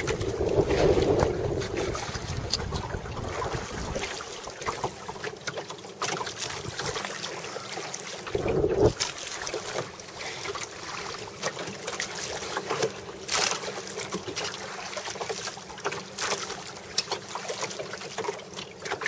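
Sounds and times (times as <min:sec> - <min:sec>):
wind buffet on microphone: 0:00.0 - 0:04.2, 0:08.3 - 0:09.0
sea water splashing against boat hull: 0:00.0 - 0:19.0.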